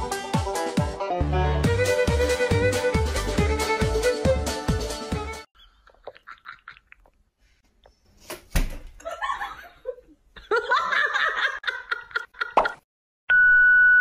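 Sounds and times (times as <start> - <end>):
person laughing and giggling: 9.0 - 12.8.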